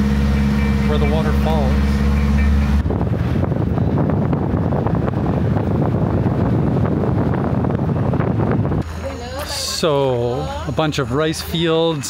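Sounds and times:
wind buffeting microphone: 0.0 - 9.4.

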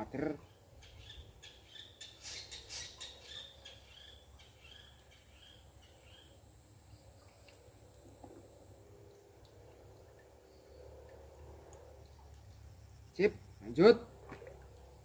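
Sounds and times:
small birds chirping: 0.4 - 6.4.

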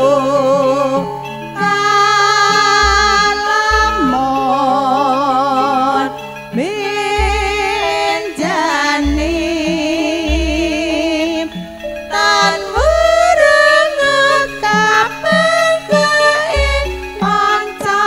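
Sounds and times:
woman singing with vibrato: 0.0 - 18.0
deep bass notes: 9.0 - 12.1.

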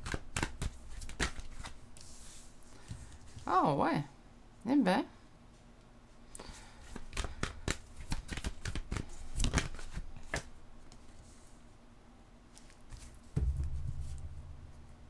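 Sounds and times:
cards being shuffled: 0.0 - 3.4, 6.8 - 11.1.

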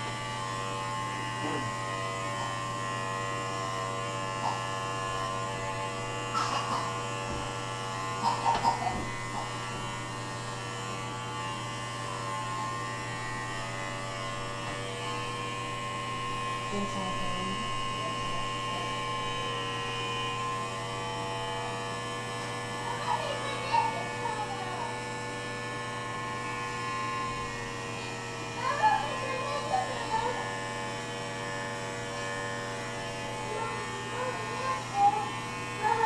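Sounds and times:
electric razor buzzing: 0.0 - 36.0.

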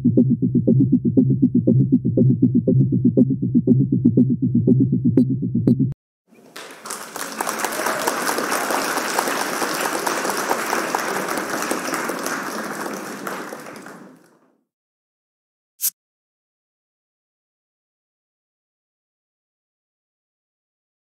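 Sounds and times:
crowd applause: 6.4 - 14.5.

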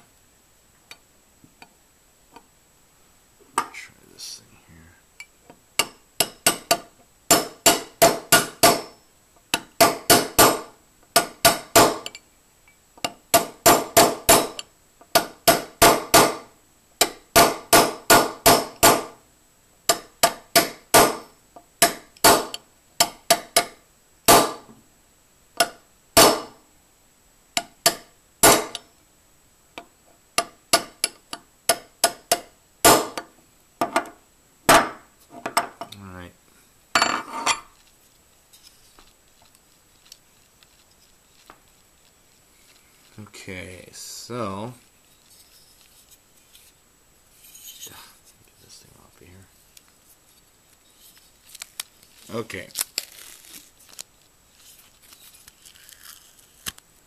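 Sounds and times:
small hammer tapping metal: 5.2 - 16.4, 19.9 - 21.2, 21.8 - 24.5, 29.8 - 34.1.

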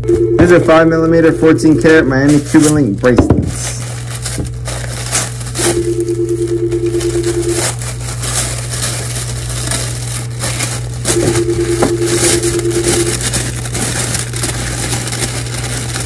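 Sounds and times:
held tone: 0.0 - 2.0, 5.6 - 7.7, 11.1 - 13.2
steady low hum: 0.0 - 16.0
plastic packaging crinkling: 0.4 - 16.0.

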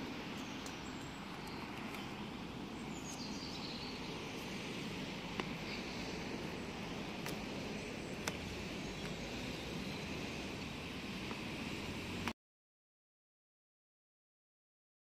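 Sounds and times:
outdoor low rumble and hiss: 0.0 - 12.4.

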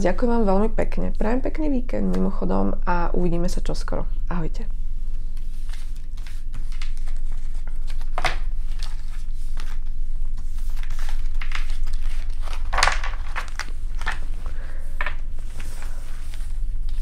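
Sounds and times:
low hum: 0.0 - 17.0
cards sliding and rustling: 5.4 - 17.0.

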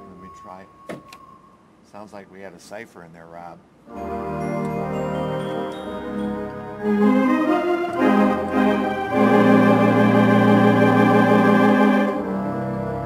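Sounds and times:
pipe organ playing: 3.9 - 13.0.

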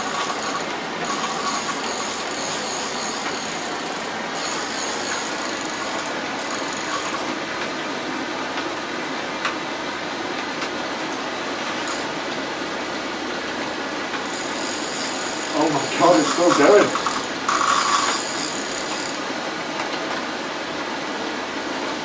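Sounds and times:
fishing reel whirring: 0.0 - 7.3, 11.8 - 12.1, 14.2 - 19.3
high hiss: 14.4 - 18.9.

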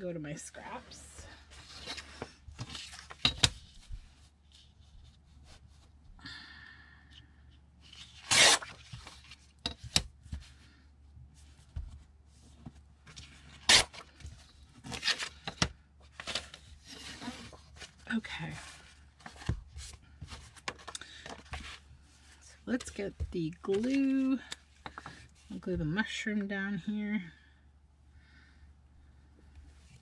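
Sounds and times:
paper page tearing against ruler: 8.1 - 8.9, 13.6 - 14.0.

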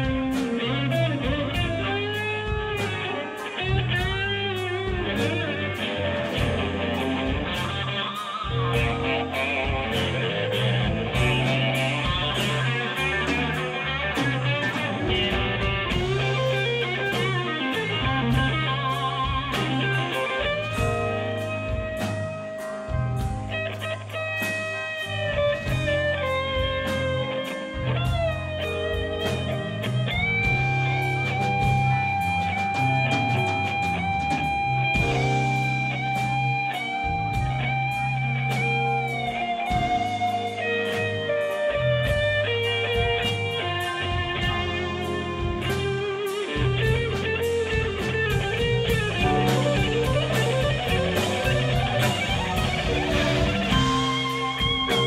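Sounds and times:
bass guitar: 0.0 - 55.0
drums: 0.0 - 55.0
electric guitar lead: 0.0 - 55.0.

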